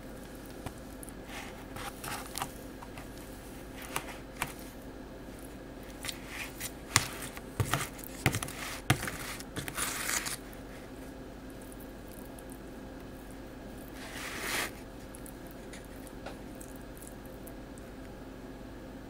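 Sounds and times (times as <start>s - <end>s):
crinkly foil scrape: 1.2s - 4.7s, 5.9s - 11.0s, 13.9s - 15.9s.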